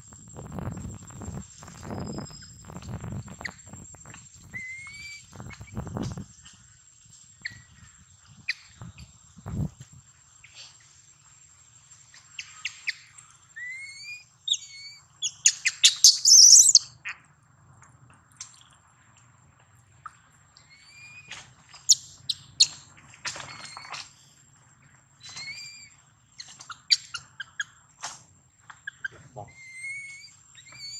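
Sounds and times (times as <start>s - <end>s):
baby monkey squealing: 13.6s - 15.0s, 15.6s - 16.8s, 25.2s - 25.9s, 28.9s - 30.9s.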